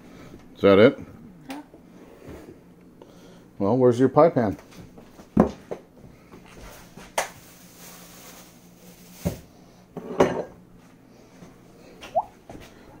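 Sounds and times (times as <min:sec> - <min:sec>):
kitchenware knocking and clattering: 0:10.0 - 0:10.6.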